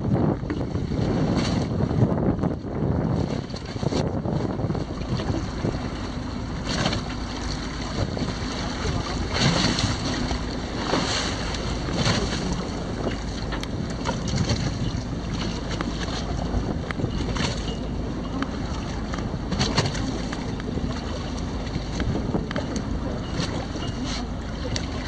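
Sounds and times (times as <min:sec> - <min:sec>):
sea water washing against hull: 0:00.0 - 0:25.0
wind buffeting microphone: 0:00.0 - 0:25.0.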